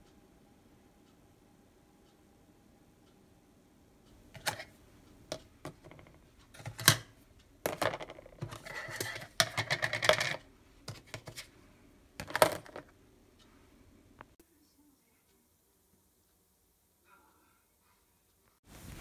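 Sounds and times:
plastic containers clattering and clicking: 4.4s - 4.7s, 5.3s - 7.1s, 7.7s - 11.5s, 12.2s - 12.9s.

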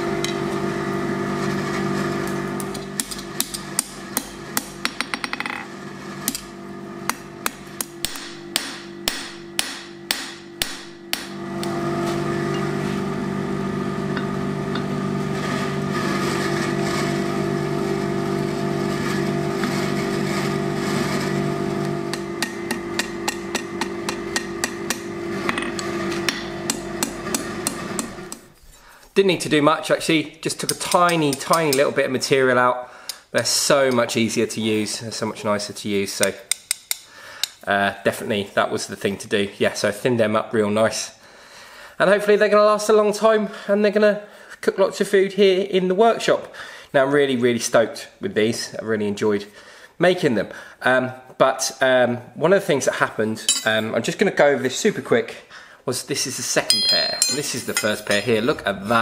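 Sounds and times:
low machine hum: 0.0s - 29.0s
hammer striking hot steel on anvil: 2.7s - 5.6s, 7.0s - 11.7s, 22.1s - 25.6s, 26.2s - 28.5s, 36.5s - 37.6s, 53.5s - 53.8s, 56.7s - 58.0s.

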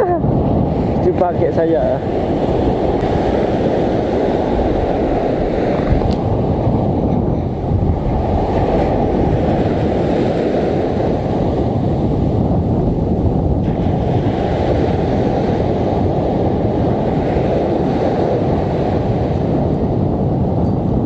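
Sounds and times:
surf breaking on beach: 0.0s - 21.0s
wind rumbling on microphone: 0.0s - 21.0s.

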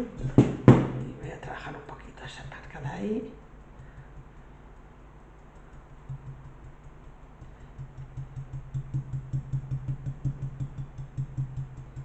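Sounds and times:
paintbrush tapping on jug: 3.6s - 12.0s.

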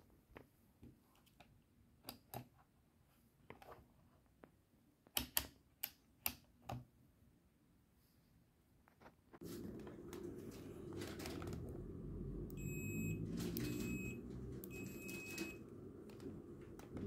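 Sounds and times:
multimeter continuity beeps: 12.5s - 15.7s.

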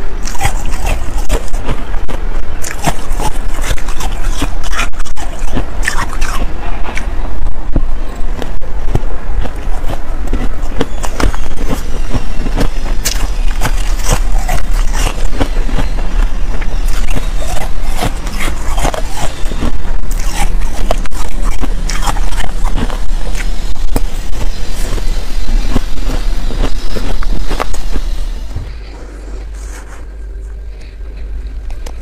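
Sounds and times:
chewing crunchy shaved ice: 0.0s - 32.0s
metal spoon scraping ice: 12.8s - 16.0s.

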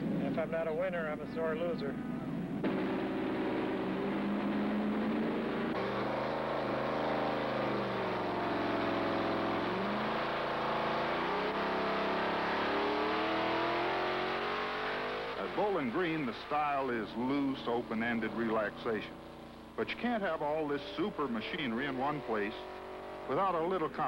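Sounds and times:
van engine revving hard: 2.6s - 24.0s.

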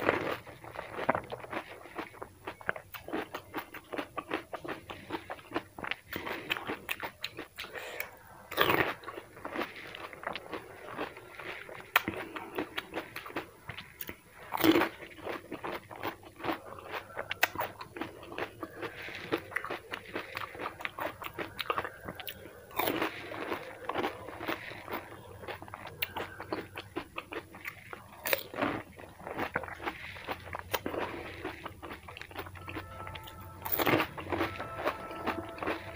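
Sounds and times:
chewing: 0.0s - 35.9s
crisp shells crunching: 0.0s - 35.9s.

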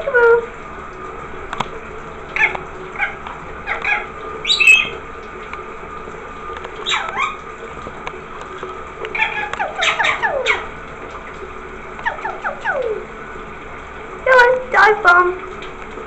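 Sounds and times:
shower water hissing: 0.0s - 16.0s
parrot squawking: 2.4s - 5.0s, 6.8s - 7.4s, 9.1s - 10.7s, 12.0s - 13.0s.

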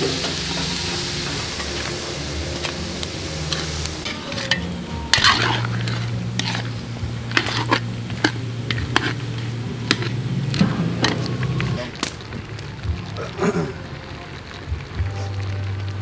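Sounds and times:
stew sizzling in a pot: 0.0s - 16.0s
spoon clinking and scraping pot: 3.5s - 11.8s.

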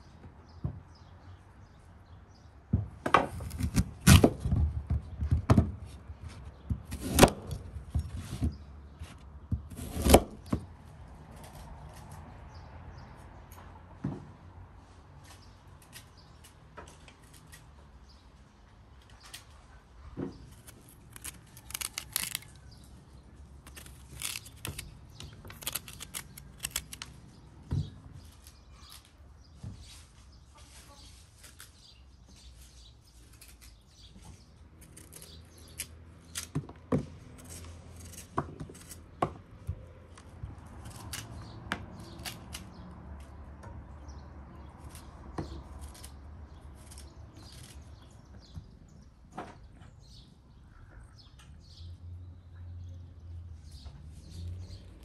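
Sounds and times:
knife slicing and scraping fruit: 3.2s - 4.4s, 5.9s - 10.7s, 20.4s - 27.4s, 29.8s - 43.3s, 44.6s - 48.3s.

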